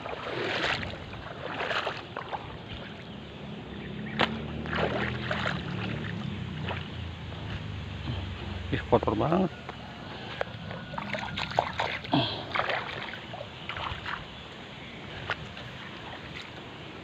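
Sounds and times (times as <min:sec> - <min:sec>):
footsteps splashing in water: 0:00.0 - 0:03.1, 0:03.9 - 0:07.8, 0:10.3 - 0:14.3, 0:15.2 - 0:16.7
low steady hum: 0:00.0 - 0:17.0.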